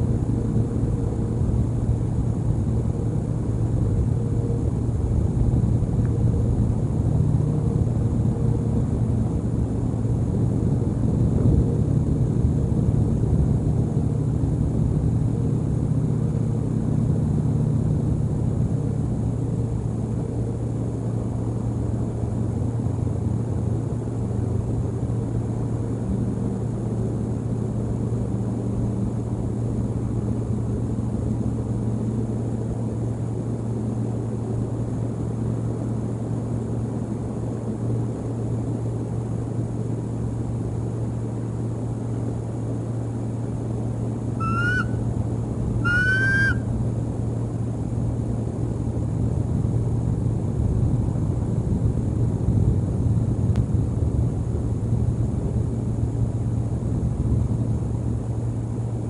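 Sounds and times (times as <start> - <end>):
constant low hum: 0.0 - 59.0
low outdoor rumble: 0.0 - 59.0
bird calls: 44.4 - 45.1, 45.7 - 46.7.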